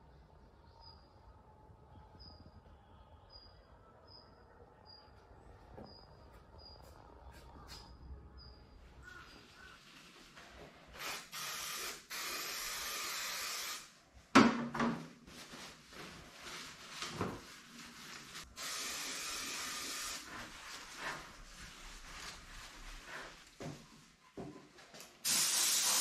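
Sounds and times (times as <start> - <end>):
aerosol can spraying: 11.0 - 13.9, 18.6 - 20.5, 25.2 - 26.0
cloth wiping metal: 19.8 - 23.7.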